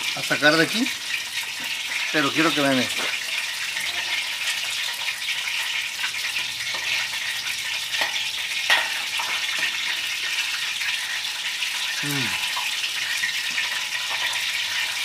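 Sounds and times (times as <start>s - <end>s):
fish sizzling in hot oil: 0.0s - 15.0s
oil crackling and popping: 0.0s - 15.0s.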